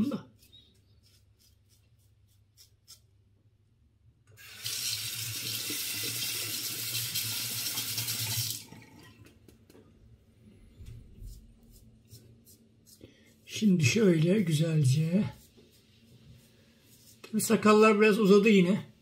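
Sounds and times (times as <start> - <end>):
razor scraping stubble: 0.3 - 3.2.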